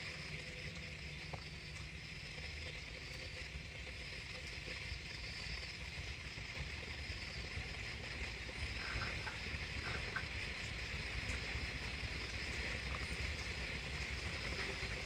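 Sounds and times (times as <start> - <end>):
night insects chirring: 0.0 - 15.0.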